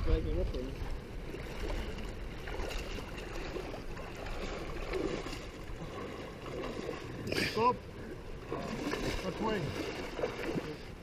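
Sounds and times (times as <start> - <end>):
stream water swishing around legs: 0.0 - 11.0
wind rumble on microphone: 0.0 - 11.0.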